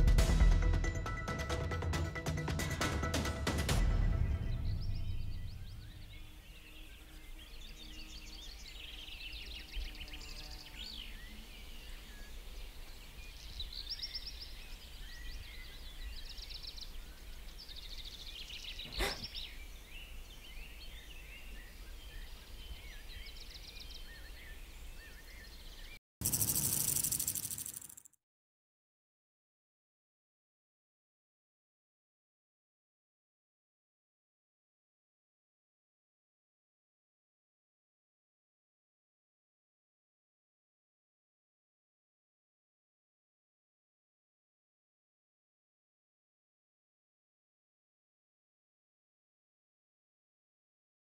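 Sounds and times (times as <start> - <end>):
small birds chirping: 4.6 - 28.2.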